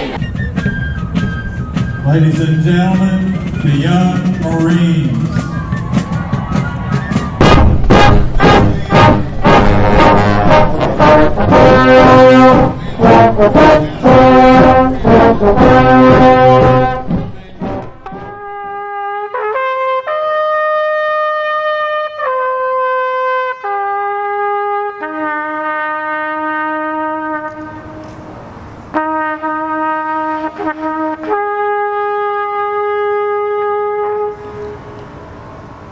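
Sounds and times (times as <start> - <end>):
drum beats: 0.0 - 19.0
brass band playing: 0.0 - 28.2, 28.9 - 35.0
solo trumpet bugle call: 7.4 - 17.1, 17.7 - 28.2, 28.9 - 35.2.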